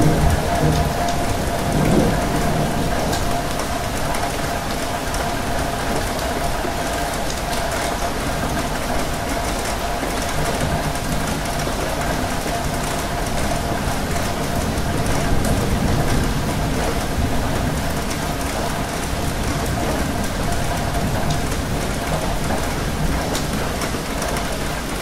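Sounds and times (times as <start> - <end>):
rail carriage rumble: 0.0 - 25.0
rain on windows: 0.0 - 25.0.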